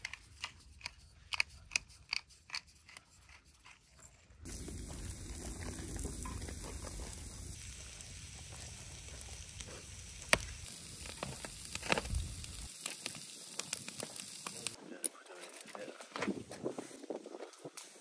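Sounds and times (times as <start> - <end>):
meat sizzling on grill trays: 4.4 - 14.8
burning wood crackling: 4.4 - 18.0.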